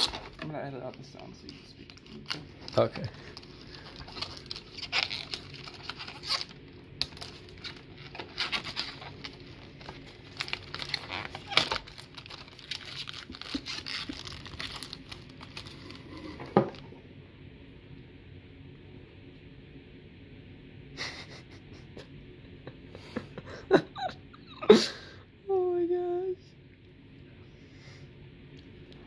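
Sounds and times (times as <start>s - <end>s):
plastic shrink wrap tearing: 0.0s - 0.5s, 1.8s - 16.8s.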